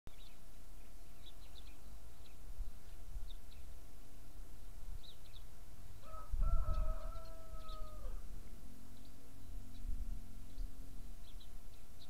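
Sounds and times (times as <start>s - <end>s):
small birds chirping: 0.1s - 12.0s
rooster crowing: 6.0s - 8.3s
low rumble: 7.8s - 11.9s.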